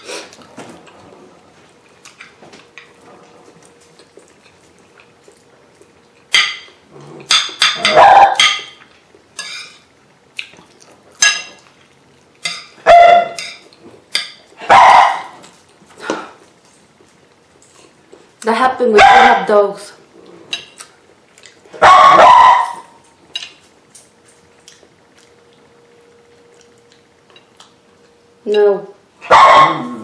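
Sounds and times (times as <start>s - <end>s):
dog barking: 7.8s - 8.5s, 12.8s - 13.4s, 14.6s - 15.4s, 19.0s - 19.5s, 21.8s - 23.0s, 29.2s - 30.0s.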